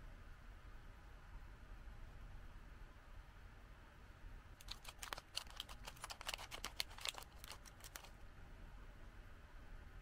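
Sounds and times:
scissors snipping plastic bag: 4.6 - 8.1.

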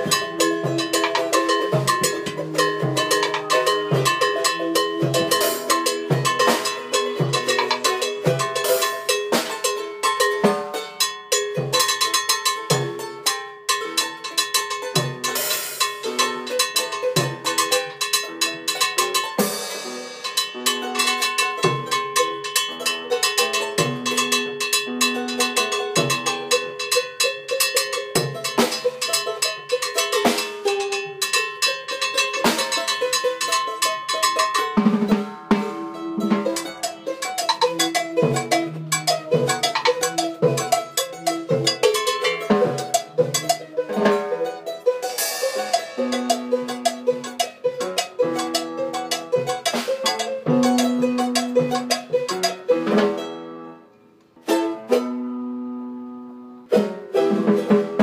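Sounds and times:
timbales and drums striking: 0.0 - 10.8, 34.4 - 44.3, 45.0 - 53.2
latin jazz band playing: 0.0 - 53.7, 56.6 - 58.0.

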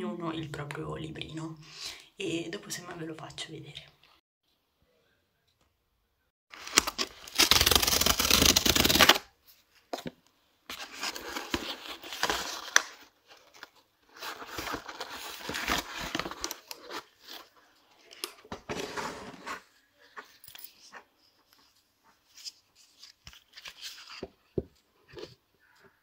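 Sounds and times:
cardboard envelope ripping: 6.5 - 9.3, 10.7 - 17.5
cardboard rustling and scraping: 10.7 - 17.7, 18.4 - 24.4.

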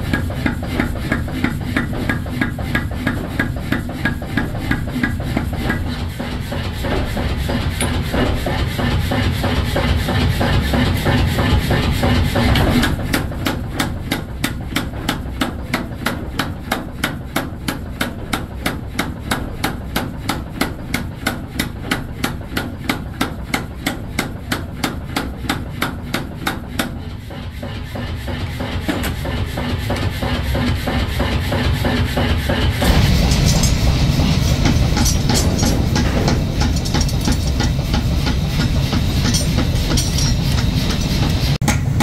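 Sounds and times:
steady machine rumble: 0.0 - 42.0
power hammer striking steel: 28.5 - 42.0.

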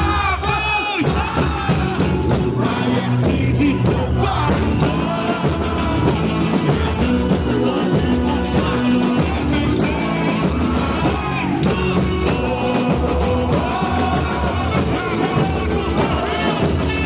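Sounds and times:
driving percussion drumming: 0.0 - 17.0
lead singer: 0.0 - 17.0.

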